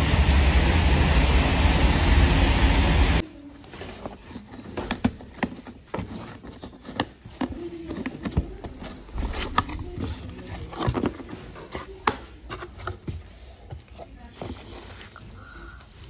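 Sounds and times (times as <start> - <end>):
cardboard box being opened: 3.6 - 15.3.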